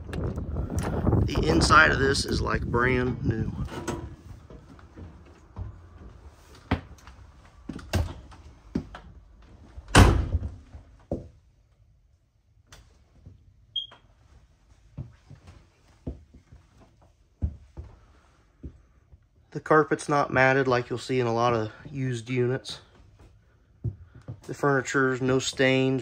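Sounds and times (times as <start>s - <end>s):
door shutting thunk: 9.9s - 10.6s.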